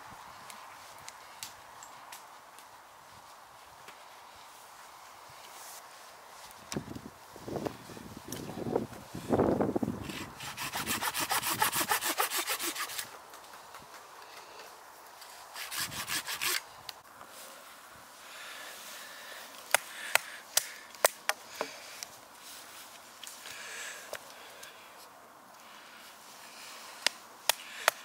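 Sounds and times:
knife sawing wood: 0:10.1 - 0:13.1, 0:15.5 - 0:16.6.

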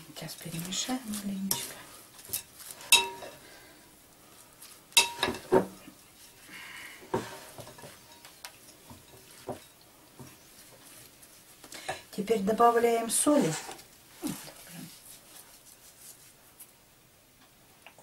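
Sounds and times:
shredded carrots rustling: 0:00.0 - 0:03.6
wooden spoon knocking glass bowl: 0:02.9 - 0:03.3.

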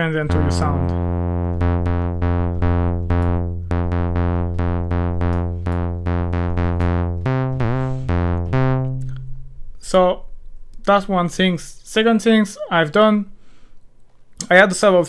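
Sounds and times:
plucky bass synth notes: 0:00.0 - 0:10.5.

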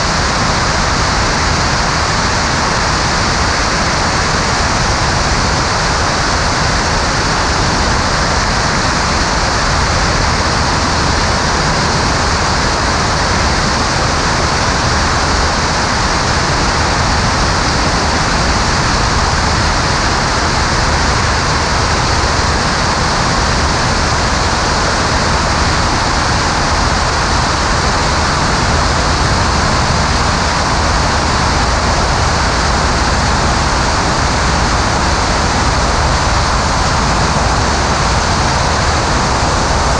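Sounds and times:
aircraft engine and propeller drone: 0:00.0 - 0:39.9.

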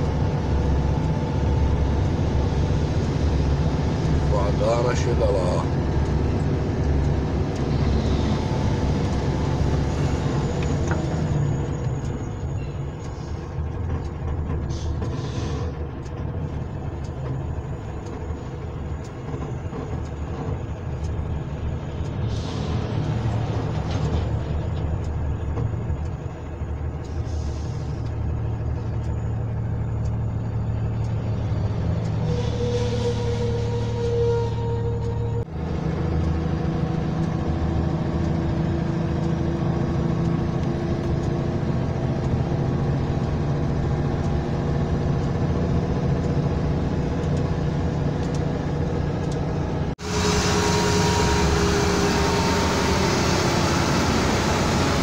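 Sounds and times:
heavy vehicle engine running: 0:00.0 - 0:55.0
air brake hisses: 0:14.7 - 0:15.8, 0:27.1 - 0:28.0.

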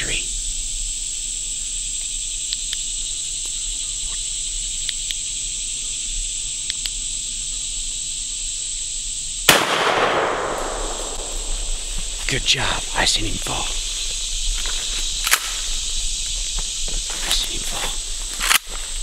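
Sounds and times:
insects droning: 0:00.0 - 0:19.0
gunshot: 0:09.5 - 0:11.7.

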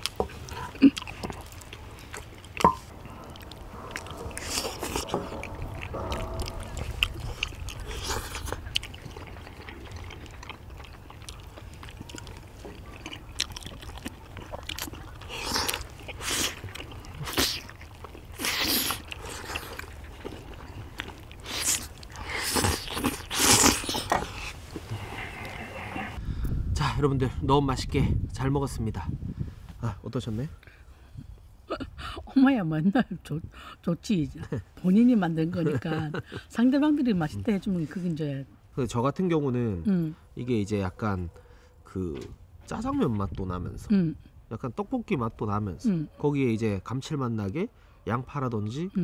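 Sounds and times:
people chewing: 0:00.0 - 0:26.2.

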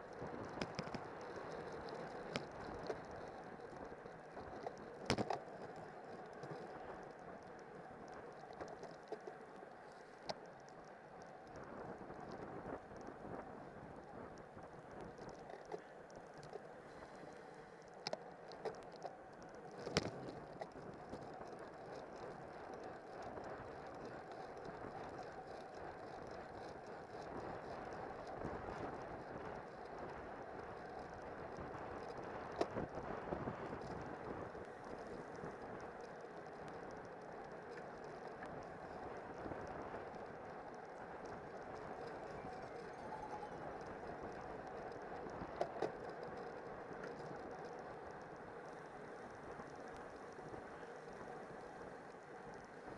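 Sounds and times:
bicycle tyre noise: 0:00.0 - 0:52.9
bike clicks: 0:00.0 - 0:52.9.

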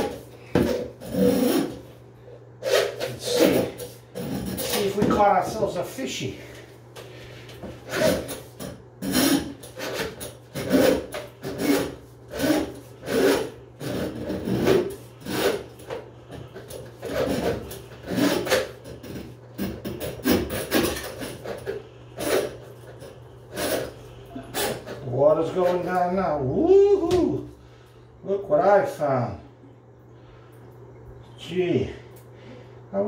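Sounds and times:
drain auger cable scraping: 0:00.0 - 0:01.9, 0:02.6 - 0:05.9, 0:07.2 - 0:26.2.

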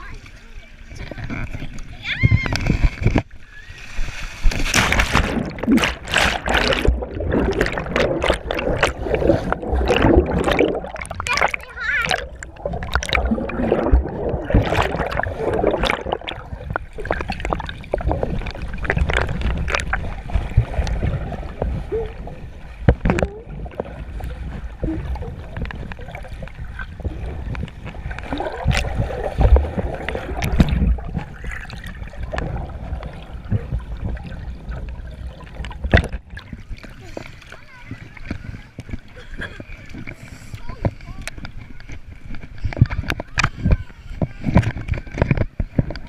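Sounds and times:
underwater churning and gurgling: 0:00.0 - 0:46.0
rising bubbles: 0:02.4 - 0:37.0.

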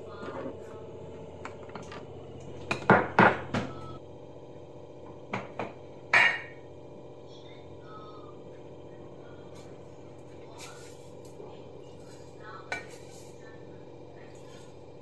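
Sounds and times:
steady low hum: 0:00.0 - 0:15.0
jars knocking on countertop: 0:02.7 - 0:03.8.

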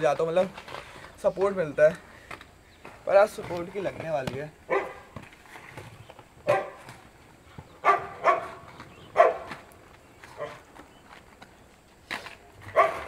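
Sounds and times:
dog barking: 0:04.7 - 0:05.1, 0:06.4 - 0:06.8, 0:07.8 - 0:08.6, 0:09.2 - 0:09.5, 0:10.4 - 0:10.6, 0:12.6 - 0:13.0.

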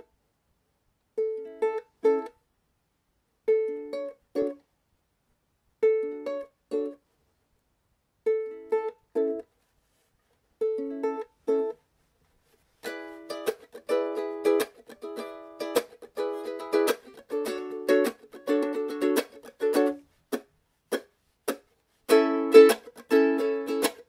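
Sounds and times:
ukulele strumming chords: 0:01.1 - 0:02.4, 0:03.4 - 0:04.7, 0:05.8 - 0:07.0, 0:08.2 - 0:09.5, 0:10.6 - 0:11.8, 0:12.6 - 0:24.0.

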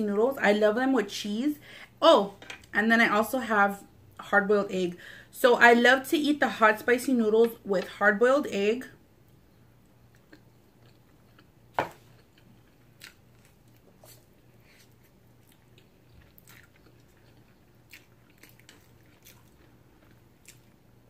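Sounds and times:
chewing and wet mouth clicks: 0:10.1 - 0:11.5, 0:15.4 - 0:20.8.

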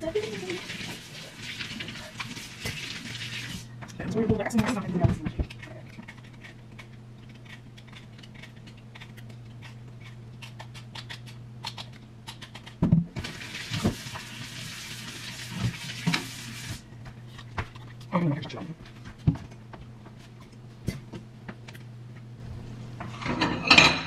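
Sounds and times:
food handling clicks and knocks: 0:17.0 - 0:22.3.

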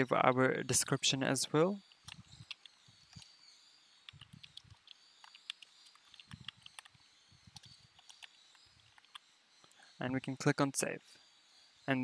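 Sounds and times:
computer keyboard typing: 0:01.9 - 0:03.3, 0:04.1 - 0:09.2.

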